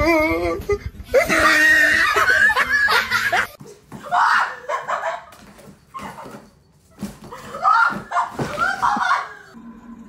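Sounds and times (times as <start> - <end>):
high-pitched laughter: 1.1 - 3.6, 4.2 - 5.3.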